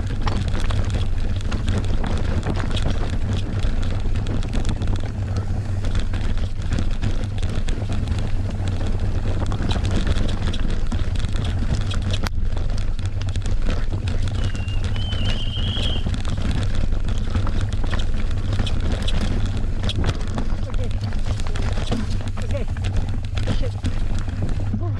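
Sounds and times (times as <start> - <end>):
mountain bike rattling: 0.0 - 24.9
wind buffeting microphone: 0.0 - 24.9
high squeal: 14.4 - 16.0.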